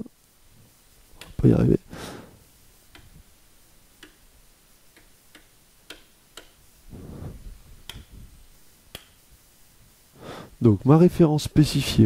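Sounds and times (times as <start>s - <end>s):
sharp clicks: 4.9s - 6.6s.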